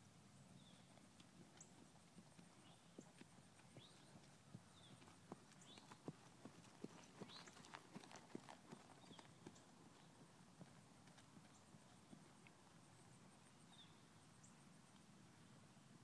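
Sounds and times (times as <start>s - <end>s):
horse hoofbeats on dirt: 0.7s - 13.1s.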